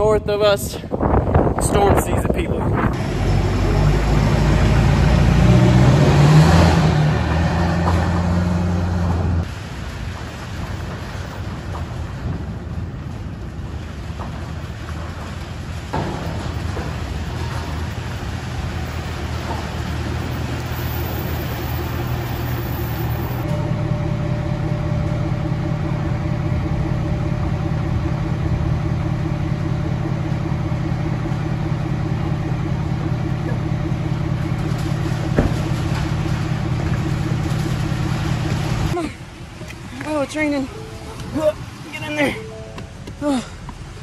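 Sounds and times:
pickup truck engine idling: 15.6s - 44.0s.

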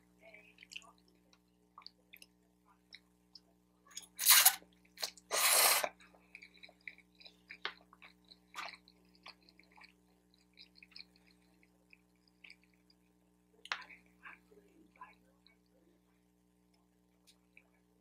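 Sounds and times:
noodle slurping: 4.2s - 7.0s
wet chewing: 4.7s - 14.0s.

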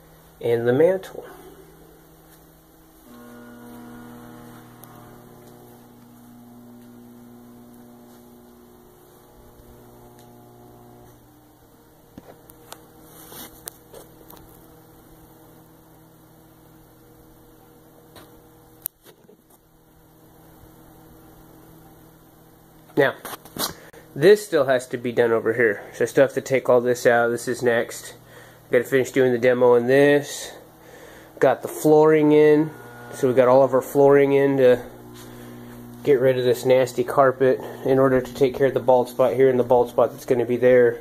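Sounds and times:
low electrical hum: 0.0s - 41.0s.

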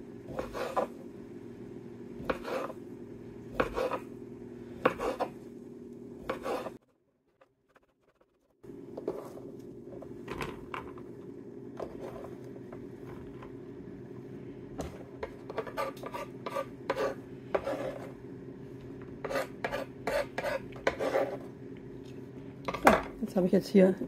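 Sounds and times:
knife blade scraping board: 0.3s - 0.9s, 2.2s - 2.8s, 3.6s - 4.1s, 4.8s - 5.4s, 6.2s - 6.8s, 15.2s - 18.2s, 19.2s - 21.4s.

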